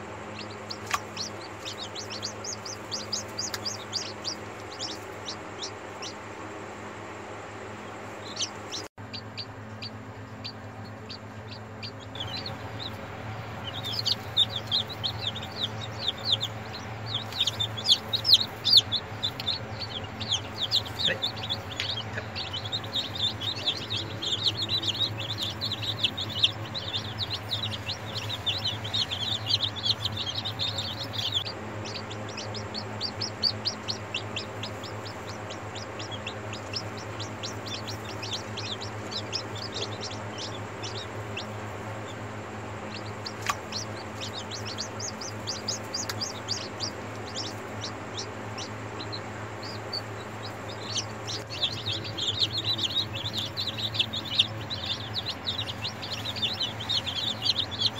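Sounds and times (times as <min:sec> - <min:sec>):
chicks peeping: 0:00.0 - 0:57.9
steady low hum: 0:00.0 - 0:57.9.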